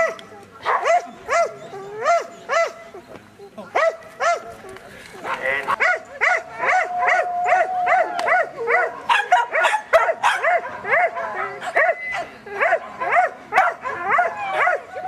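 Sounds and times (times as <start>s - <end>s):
dog barking: 0.0s - 2.8s, 3.8s - 4.5s, 5.3s - 6.9s, 7.5s - 12.0s, 12.6s - 14.9s.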